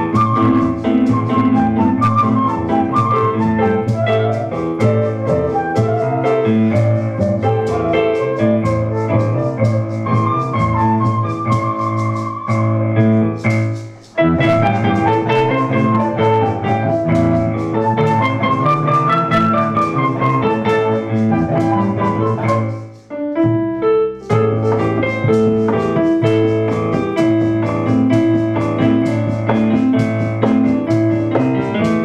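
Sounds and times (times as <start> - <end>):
flute: 0.0 - 23.0, 24.2 - 25.8
keyboard: 0.0 - 32.0.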